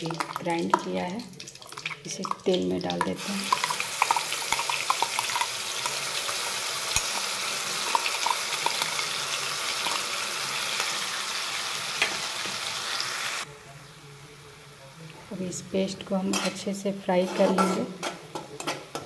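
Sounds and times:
paste sizzling in hot oil: 0.0s - 13.5s
spoon scraping steel jar: 17.2s - 18.8s.

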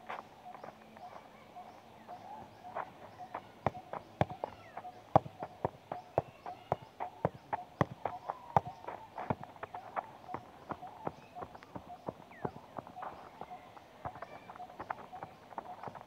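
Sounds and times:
ball thudding against foot: 3.6s - 13.3s.

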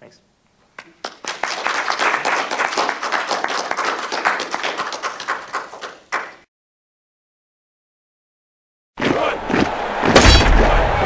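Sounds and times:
audience applauding: 0.8s - 6.5s.

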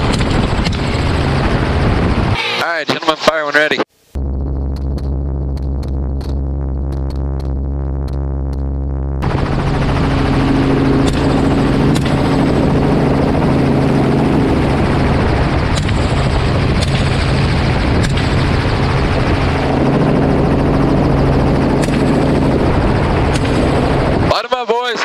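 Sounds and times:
helicopter rotor and engine drone: 0.0s - 3.7s, 9.2s - 25.0s.

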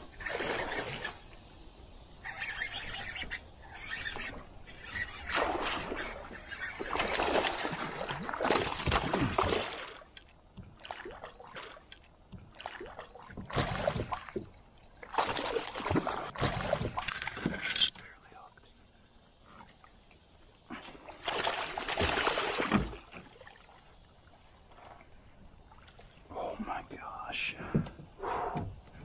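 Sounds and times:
fish splashing in water: 5.2s - 10.1s, 21.1s - 23.7s.

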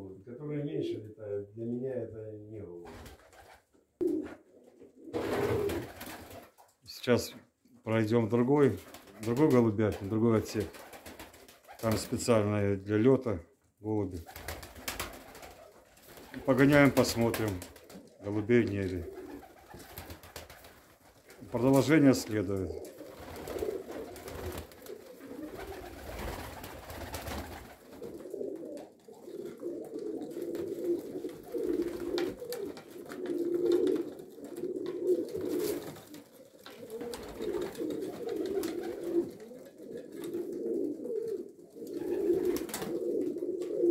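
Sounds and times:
pigeons cooing: 3.2s - 6.4s, 18.9s - 21.4s, 22.7s - 43.9s.

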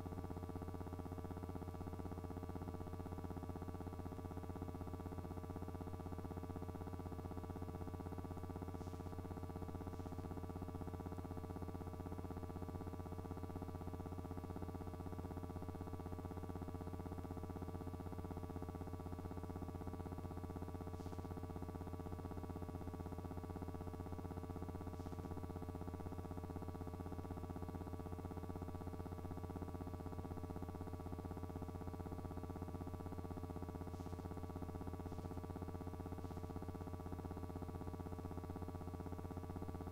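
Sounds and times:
electrical hum: 31.1s - 39.9s.

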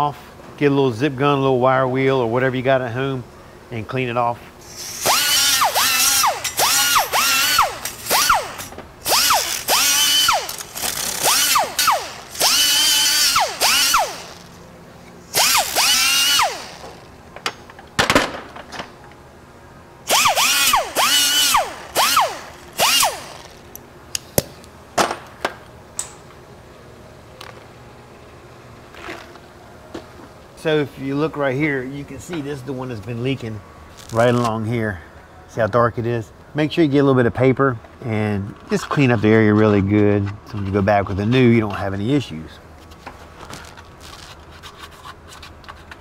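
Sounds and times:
pneumatic grinder whining: 4.7s - 14.6s, 15.3s - 17.1s, 20.1s - 23.8s.

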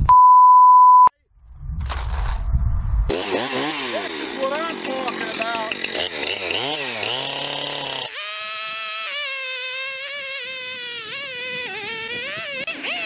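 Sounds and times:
chainsaw revving and cutting wood: 3.1s - 13.0s.

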